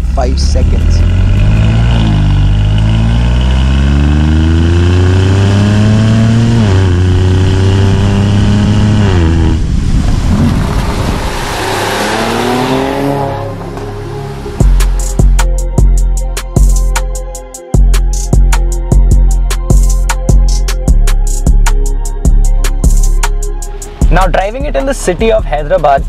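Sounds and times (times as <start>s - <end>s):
car engine accelerating hard: 0.0s - 15.4s
rushing noise: 7.4s - 15.1s.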